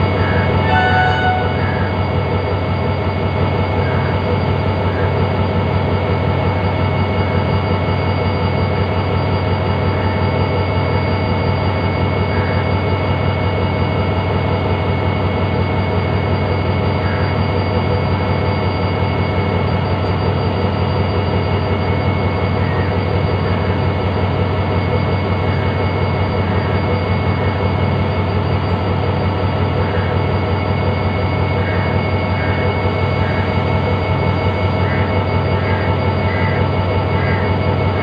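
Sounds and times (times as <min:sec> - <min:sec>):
brief high tone: 0:00.0 - 0:02.2
locomotive engine humming: 0:00.0 - 0:38.0.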